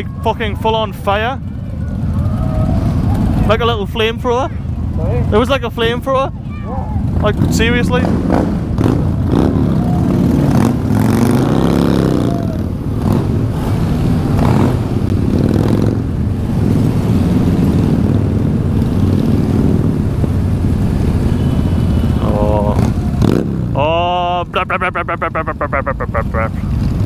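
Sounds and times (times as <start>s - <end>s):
motorcycles running: 0.0s - 27.0s
motorcycle engine revving: 7.0s - 27.0s.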